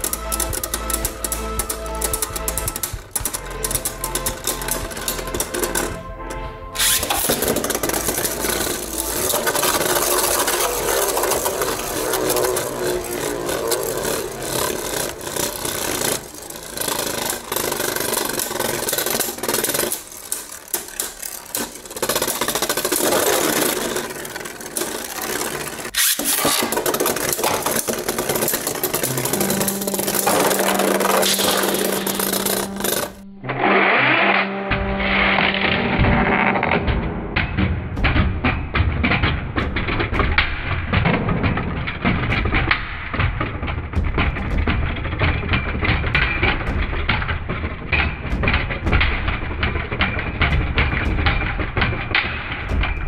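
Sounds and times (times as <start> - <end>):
spinning tops clashing knocks: 0.0 - 33.3
spinning tops whirring and scraping: 0.0 - 34.5
spinning top humming: 0.0 - 36.6.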